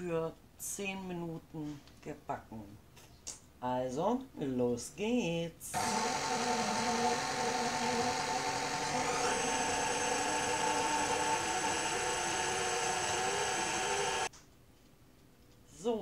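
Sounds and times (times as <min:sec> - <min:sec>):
stand mixer motor whine: 0:05.8 - 0:14.3.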